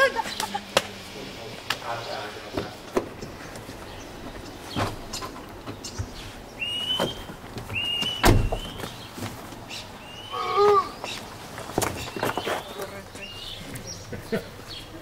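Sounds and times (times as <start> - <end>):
bird chirping: 1.5 - 15.0
sharp thump: 8.2 - 8.8.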